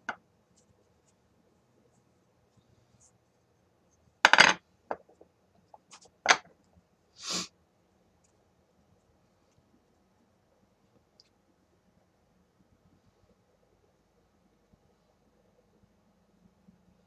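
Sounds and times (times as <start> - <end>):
broomstick clattering onto table: 4.3 - 5.0.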